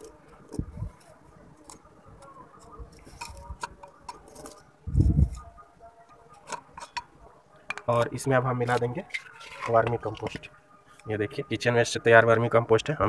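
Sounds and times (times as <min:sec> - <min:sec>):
scraping soil in a pot: 0:08.7 - 0:10.4.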